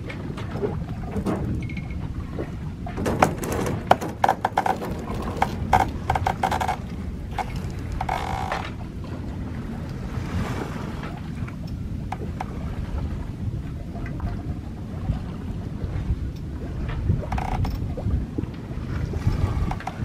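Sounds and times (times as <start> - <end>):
wind and water rushing: 0.0 - 20.0
winch ratcheting clicks: 3.1 - 8.8, 17.3 - 17.8, 19.7 - 20.0.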